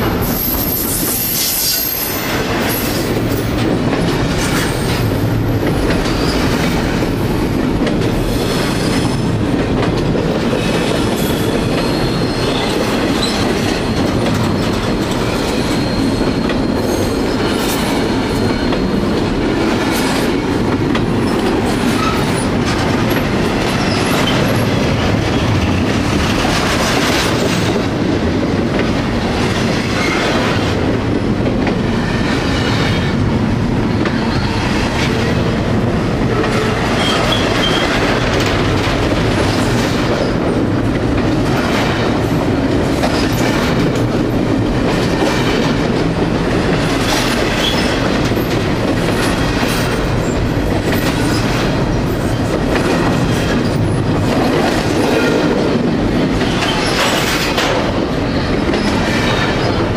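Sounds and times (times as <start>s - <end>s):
train wheels roaring on rails: 0.0s - 59.9s
faint high wheel squeal: 15.6s - 17.6s.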